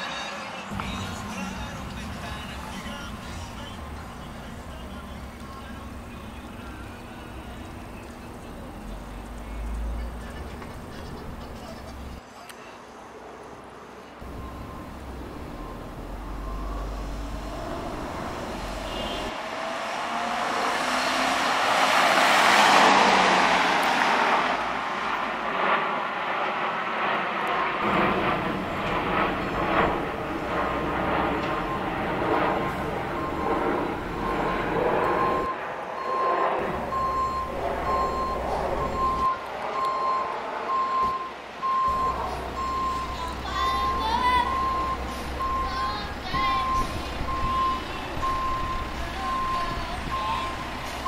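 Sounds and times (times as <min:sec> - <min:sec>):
truck engine running: 0:00.7 - 0:12.2, 0:14.2 - 0:19.3, 0:27.8 - 0:35.5, 0:36.6 - 0:51.0
backup alarm beeping: 0:14.2 - 0:19.3, 0:30.5 - 0:51.0.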